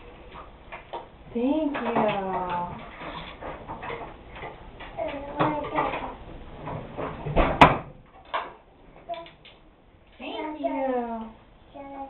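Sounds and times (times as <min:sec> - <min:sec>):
dishes clinking and rattling: 0:01.6 - 0:08.6.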